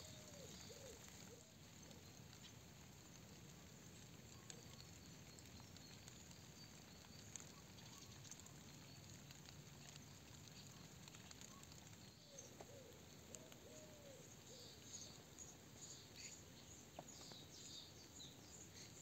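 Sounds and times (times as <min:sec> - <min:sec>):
bird calling: 0:00.0 - 0:01.6, 0:10.6 - 0:15.2
small ticks: 0:00.0 - 0:19.0
soft steady hiss: 0:00.0 - 0:19.0.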